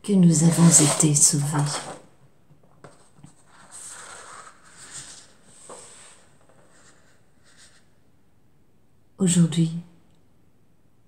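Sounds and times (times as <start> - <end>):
faint soft rustling: 0.5 - 8.0.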